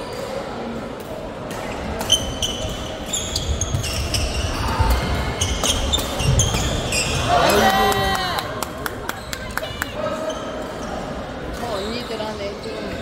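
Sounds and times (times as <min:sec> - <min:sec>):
shoe squeaks on court floor: 0:01.7 - 0:07.4, 0:10.1 - 0:13.0.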